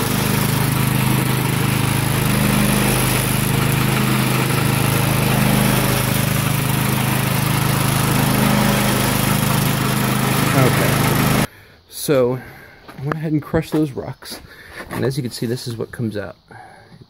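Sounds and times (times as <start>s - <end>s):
small engine humming: 0.0s - 11.5s.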